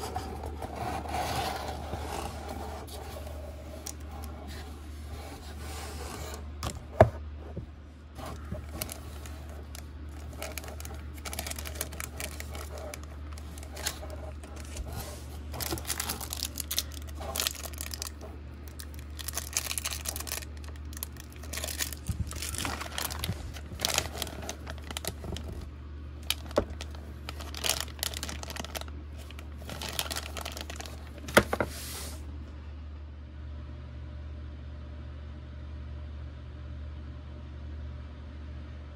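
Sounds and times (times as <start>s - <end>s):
low hum: 0.0s - 38.0s
plastic bag crinkling: 8.2s - 31.9s.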